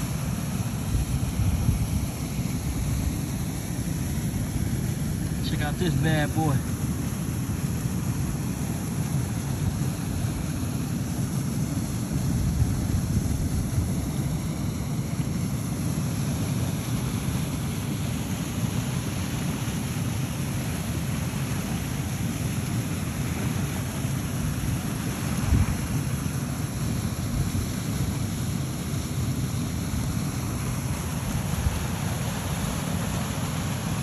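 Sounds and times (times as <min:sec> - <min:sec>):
wind blowing across microphone: 0:00.9 - 0:03.1, 0:12.2 - 0:14.4, 0:25.4 - 0:26.0.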